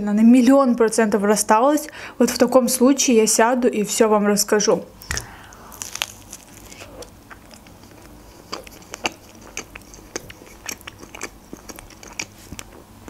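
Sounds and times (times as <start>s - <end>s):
chewing with wet mouth clicks: 5.1s - 12.8s.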